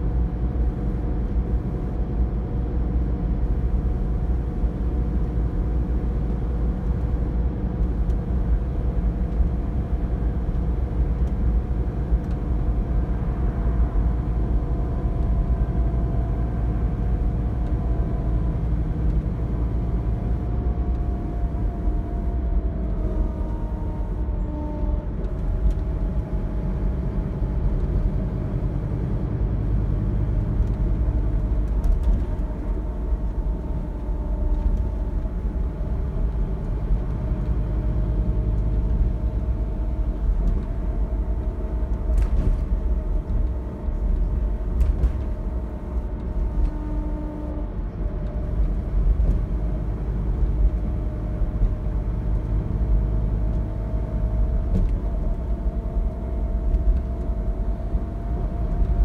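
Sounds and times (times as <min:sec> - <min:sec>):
bus engine rumble: 0:00.0 - 0:59.0
drivetrain whine: 0:00.0 - 0:59.0
road noise: 0:00.0 - 0:59.0.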